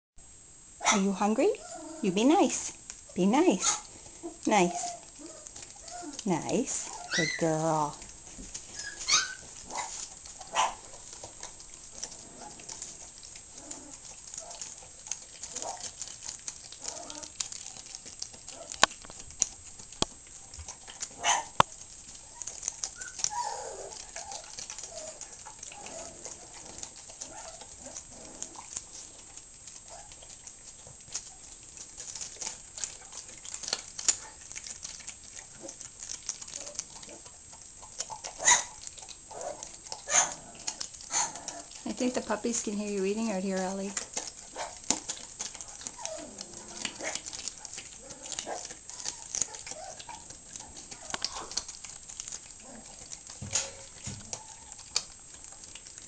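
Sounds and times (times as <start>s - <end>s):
dog chewing meat: 0.6s - 56.0s.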